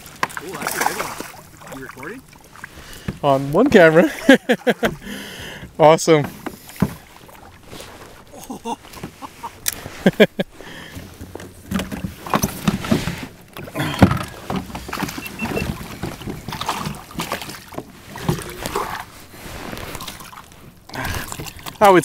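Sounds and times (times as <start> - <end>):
knocks and clatter on plastic kayak: 0.0 - 22.0.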